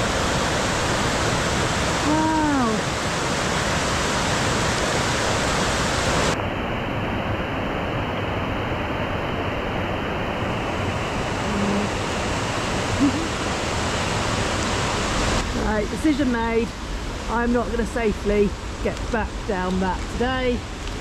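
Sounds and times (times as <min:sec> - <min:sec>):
waterfall rushing: 0:00.0 - 0:06.4, 0:07.0 - 0:17.3.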